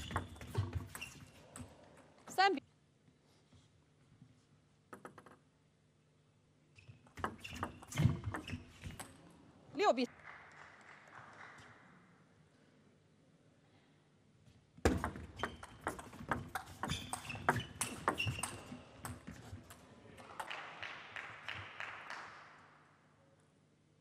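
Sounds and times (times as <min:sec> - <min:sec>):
applause: 0:10.1 - 0:12.0, 0:20.2 - 0:22.9.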